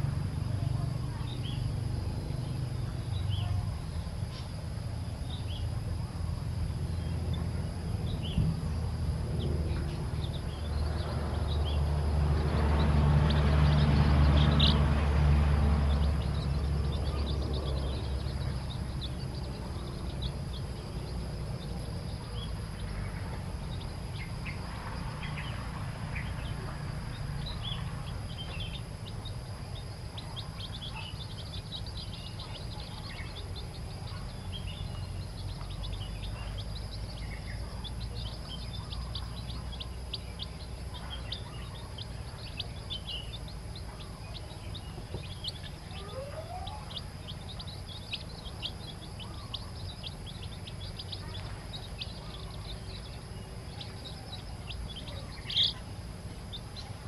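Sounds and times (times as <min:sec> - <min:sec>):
chicks peeping: 0:00.0 - 0:57.0.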